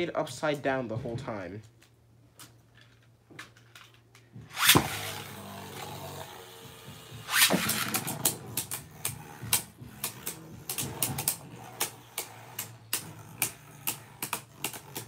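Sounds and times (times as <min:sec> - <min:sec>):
spinning tops whirring: 0:04.5 - 0:15.0
spinning tops clacking: 0:07.2 - 0:15.0.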